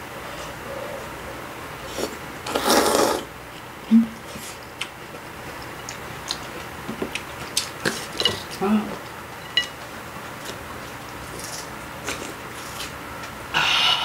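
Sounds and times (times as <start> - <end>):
slurping noodles: 1.9 - 3.3.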